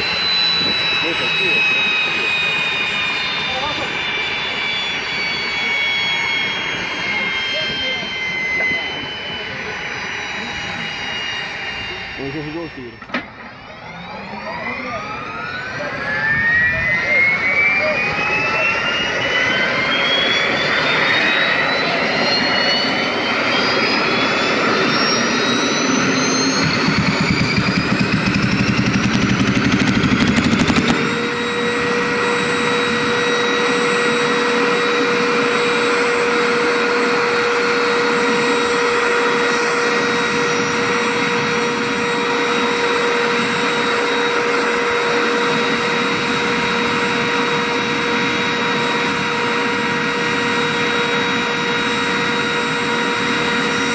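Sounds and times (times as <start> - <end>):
gas turbine whine: 0.0 - 53.9
low pulsing rumble: 26.5 - 35.5.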